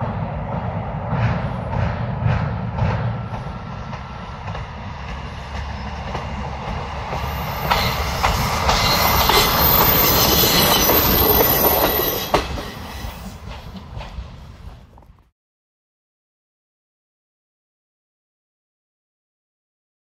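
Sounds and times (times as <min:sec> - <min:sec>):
diesel railcar rumbling past: 0:00.0 - 0:15.3
high wheel squeal: 0:05.2 - 0:13.4.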